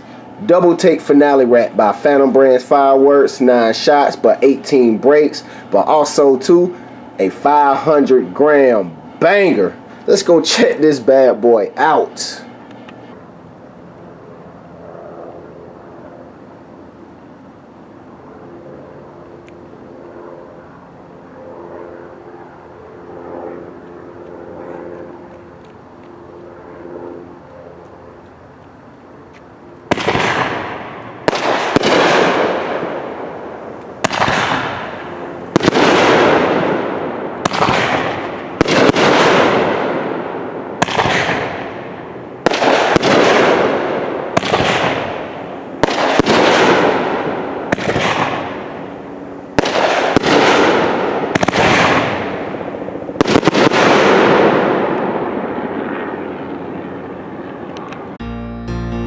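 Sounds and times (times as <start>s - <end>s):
sharp firework bangs: 29.9s - 33.1s, 34.0s - 40.2s, 40.8s - 41.7s, 42.4s - 48.6s, 49.6s - 52.6s, 53.2s - 55.5s
fireworks double bursts: 29.9s - 33.2s, 34.0s - 41.7s, 42.4s - 48.7s, 49.6s - 55.3s.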